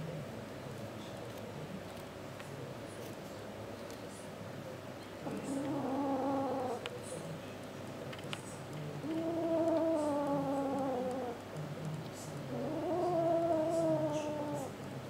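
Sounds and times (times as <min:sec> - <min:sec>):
kitten growling: 0:05.2 - 0:06.9, 0:09.0 - 0:11.5, 0:12.4 - 0:14.9.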